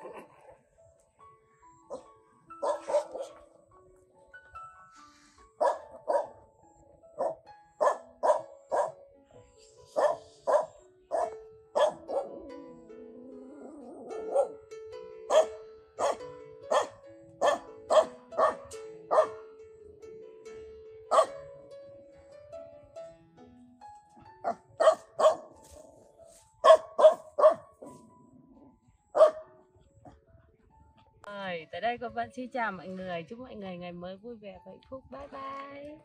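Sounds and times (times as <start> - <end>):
background music with held notes: 0.0 - 36.0
dog barking: 1.9 - 3.5, 5.6 - 6.4, 7.2 - 9.0, 9.9 - 12.4, 14.1 - 14.6, 15.3 - 19.4, 21.1 - 21.4, 24.4 - 25.6, 26.6 - 28.0, 29.1 - 29.6.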